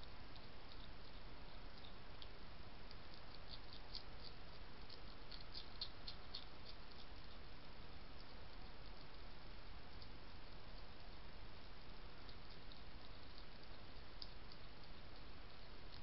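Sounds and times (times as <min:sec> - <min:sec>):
steady hiss: 0:00.0 - 0:16.0
hedgehog crunching biscuits: 0:00.2 - 0:16.0.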